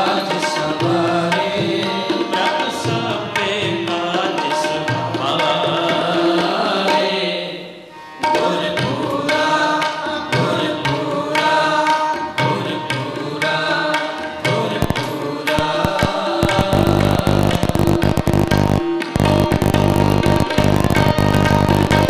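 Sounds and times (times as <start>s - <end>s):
man singing devotional verse: 0.0s - 18.6s, 19.2s - 22.0s
tabla: 0.0s - 22.0s
held instrumental tones: 15.6s - 22.0s.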